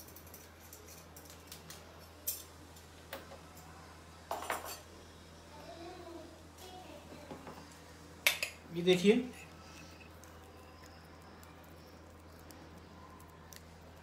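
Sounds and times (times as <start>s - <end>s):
metal utensils clinking on cookware: 4.3s - 4.8s.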